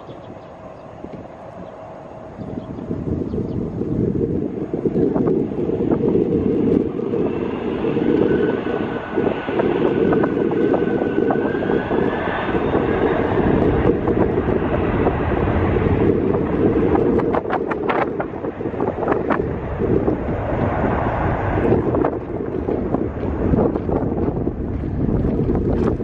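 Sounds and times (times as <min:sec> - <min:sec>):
jet airliner rumble and whine: 0:00.0 - 0:26.0
wind buffeting microphone: 0:00.0 - 0:26.0.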